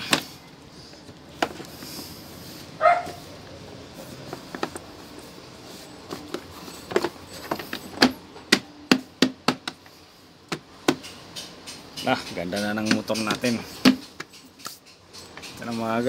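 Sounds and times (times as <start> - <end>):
hand tapping rubber mat: 6.2 - 9.9.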